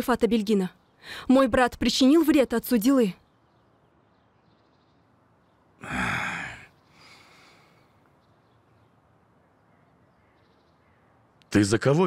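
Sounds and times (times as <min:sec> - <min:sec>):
person sighing: 0:05.8 - 0:07.8
person breathing out: 0:05.8 - 0:07.9.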